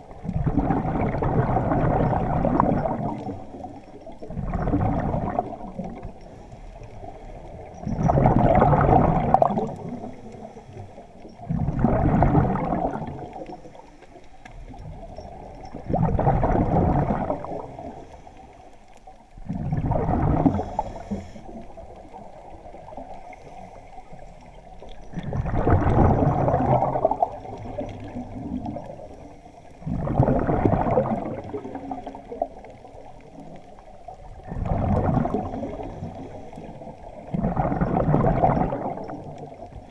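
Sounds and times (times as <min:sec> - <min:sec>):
underwater air bubbling: 0:00.0 - 0:39.9
diver breathing: 0:20.4 - 0:21.8.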